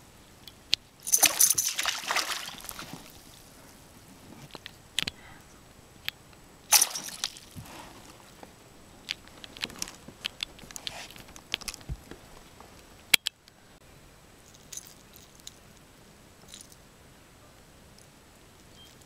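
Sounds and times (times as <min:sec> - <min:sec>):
fish splashing: 0:01.1 - 0:03.6, 0:06.7 - 0:07.6.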